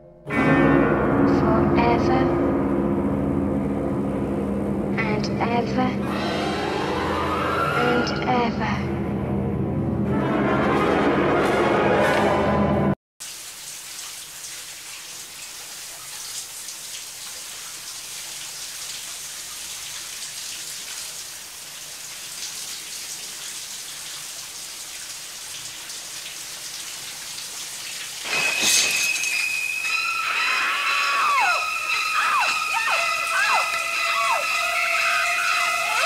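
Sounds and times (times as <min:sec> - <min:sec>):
shower curtain yanked open: 0:28.2 - 0:30.0
screeching high violin stabs: 0:28.3 - 0:36.0.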